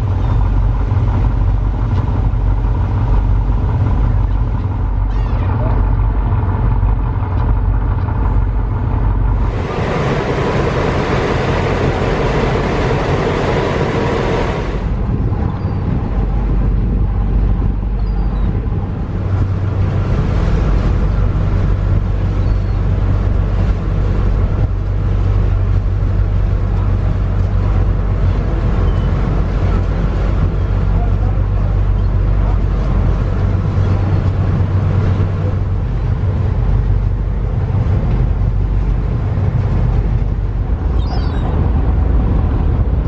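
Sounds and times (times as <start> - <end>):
ferry engine drone: 0.0 - 43.0
water noise: 0.0 - 43.0
wind: 0.0 - 43.0
loud rushing noise: 9.3 - 15.2.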